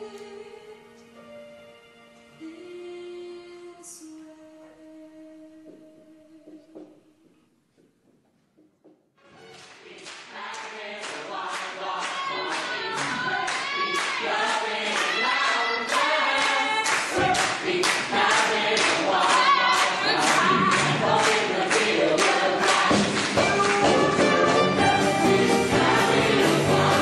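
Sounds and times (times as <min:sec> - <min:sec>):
ensemble singing over up-tempo music: 0:09.9 - 0:27.0.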